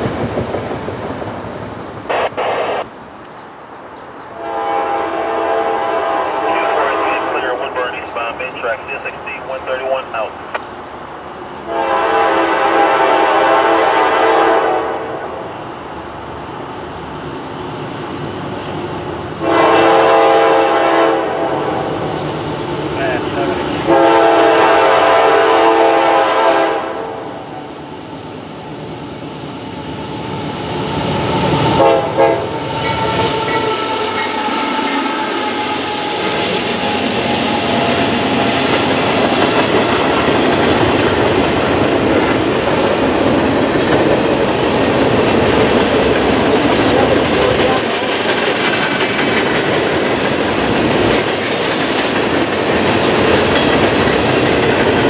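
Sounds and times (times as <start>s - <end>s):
train horn: 4.4s - 7.6s, 11.7s - 15.3s, 19.4s - 21.9s, 23.9s - 27.4s, 31.7s - 36.5s
steel wheels rolling on rails: 32.7s - 55.0s.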